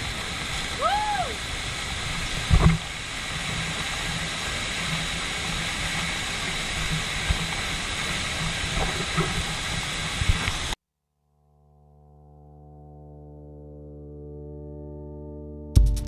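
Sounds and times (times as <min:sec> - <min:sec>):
waterfall rushing: 0:00.0 - 0:10.8.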